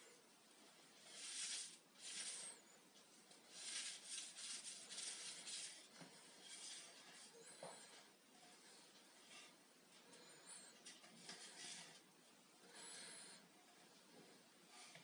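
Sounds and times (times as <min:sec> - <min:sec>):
paper towel rubbing wood: 0:01.0 - 0:02.6, 0:03.4 - 0:07.2.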